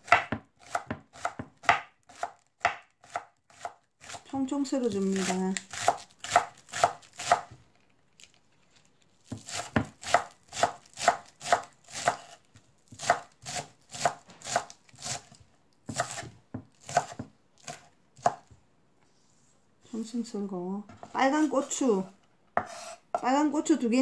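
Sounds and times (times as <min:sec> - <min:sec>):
knife chopping on wooden board: 0:00.0 - 0:04.2, 0:05.2 - 0:07.6, 0:09.3 - 0:18.5, 0:22.6 - 0:23.2.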